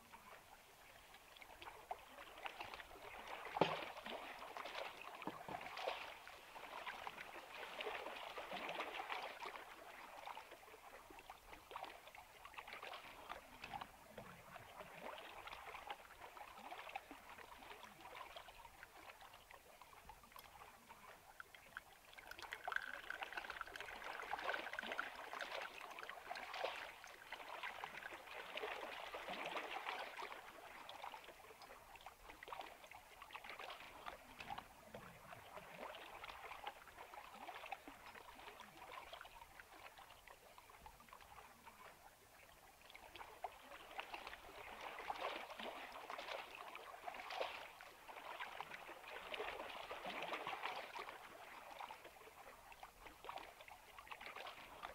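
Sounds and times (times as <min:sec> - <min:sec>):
water splashing and trickling: 0:00.0 - 0:54.9.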